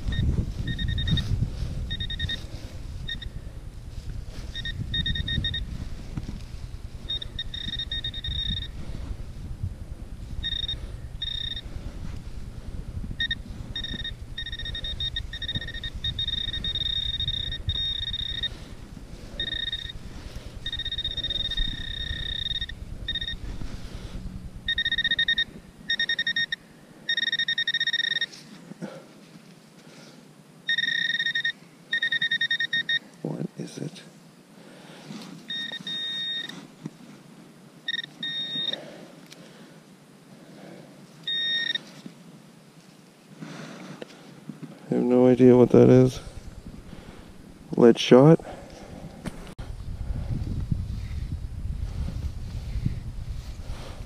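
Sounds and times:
pinpointer high alert tone: 0.0s - 1.3s, 1.9s - 3.4s, 4.4s - 5.8s, 7.0s - 8.8s, 10.4s - 11.8s, 13.2s - 23.6s, 24.2s - 28.4s, 30.7s - 33.2s, 35.5s - 36.6s, 37.9s - 38.8s, 41.3s - 41.9s
low rumble: 0.0s - 26.6s.

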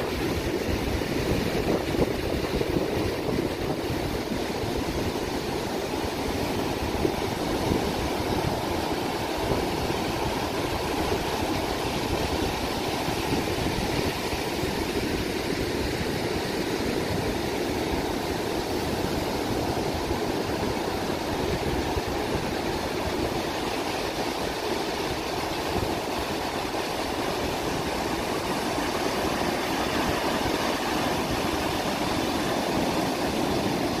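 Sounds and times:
boat engine and water: 0.0s - 34.0s.

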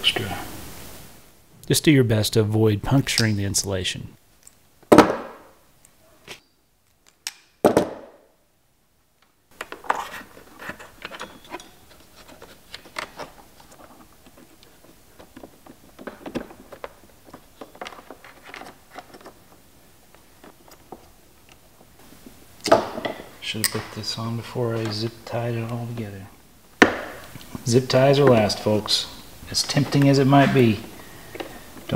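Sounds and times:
wire connectors clicking and scraping: 9.6s - 21.9s.

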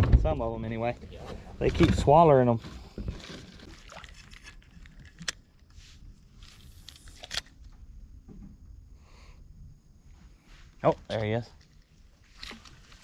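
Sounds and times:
handling fishing tackle: 2.6s - 7.6s, 11.0s - 13.0s.

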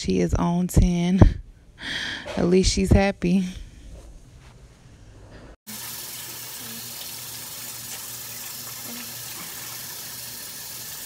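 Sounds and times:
sink tap running: 5.7s - 11.0s.

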